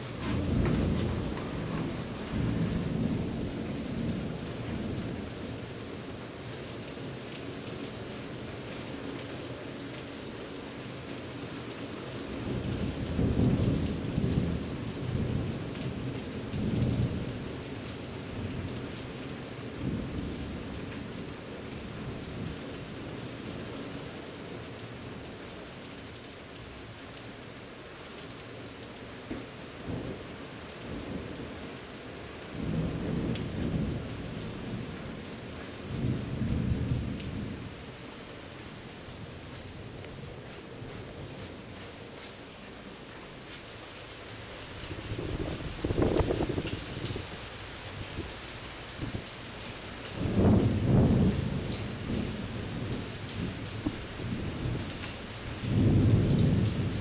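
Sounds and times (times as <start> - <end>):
thunder rumbling: 0.0 - 5.2, 45.0 - 47.4, 50.2 - 57.0
steady rain: 0.0 - 57.0.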